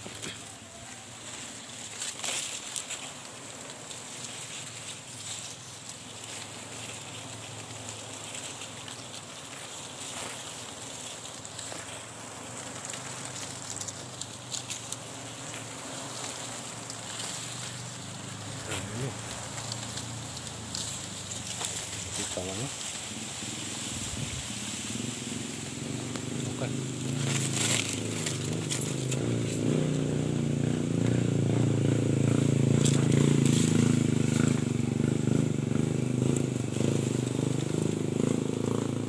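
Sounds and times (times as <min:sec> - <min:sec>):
bees buzzing: 0:00.0 - 0:39.0.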